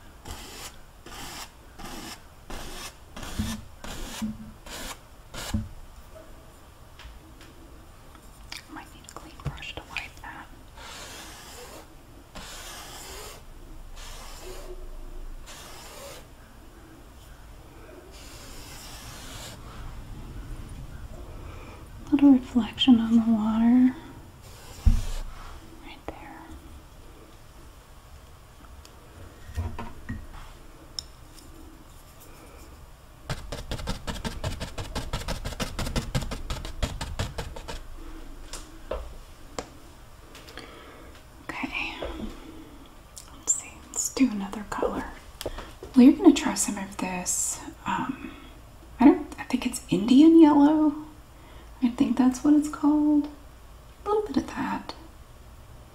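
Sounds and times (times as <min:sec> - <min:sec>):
paintbrush scratching on canvas: 0:00.2 - 0:05.6, 0:10.8 - 0:14.8, 0:15.4 - 0:16.3, 0:18.1 - 0:19.6, 0:24.4 - 0:25.5, 0:33.3 - 0:37.9
brush swishing on canvas: 0:10.8 - 0:14.8, 0:15.4 - 0:16.3, 0:18.1 - 0:19.8, 0:24.4 - 0:25.6.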